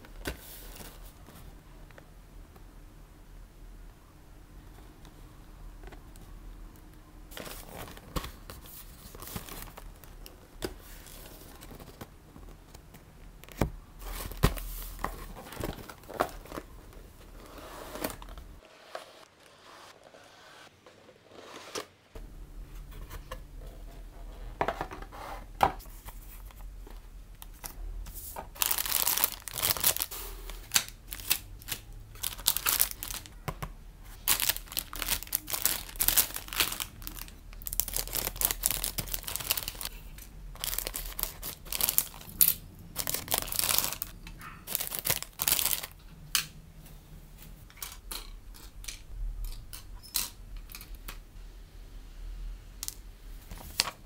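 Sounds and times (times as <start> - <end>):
plastic bags crinkling: 28.5 - 33.4, 34.2 - 40.0, 40.6 - 46.0.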